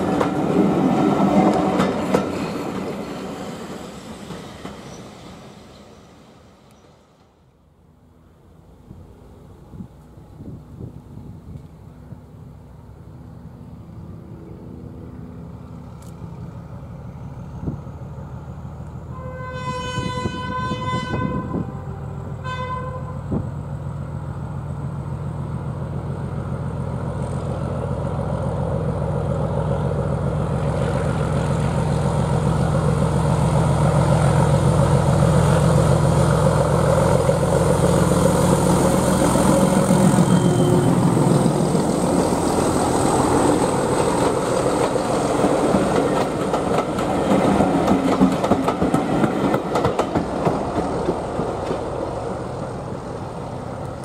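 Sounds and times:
train wheels on rails: 0:00.0 - 0:07.6, 0:14.0 - 0:21.7, 0:23.2 - 0:54.0
locomotive engine: 0:00.0 - 0:20.8, 0:21.4 - 0:54.0
locomotive horn: 0:19.1 - 0:23.4, 0:39.9 - 0:41.3.

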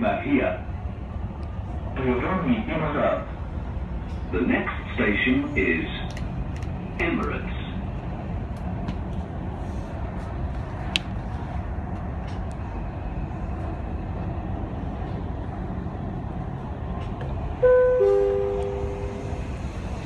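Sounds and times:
train carriage rumbling: 0:00.0 - 0:20.0
station announcement: 0:01.8 - 0:03.6, 0:04.3 - 0:06.2, 0:06.9 - 0:08.0, 0:16.6 - 0:20.0.

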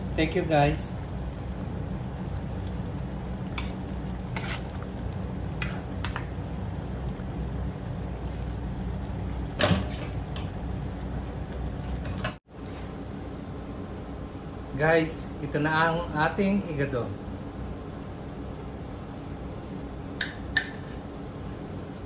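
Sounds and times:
stew simmering: 0:01.0 - 0:12.4
metal ladle scraping a wok: 0:04.3 - 0:04.8.

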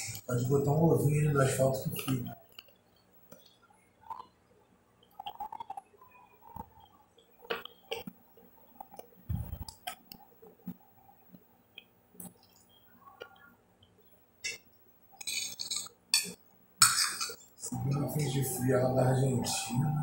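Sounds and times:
chewing: 0:02.4 - 0:04.4, 0:05.0 - 0:16.4.

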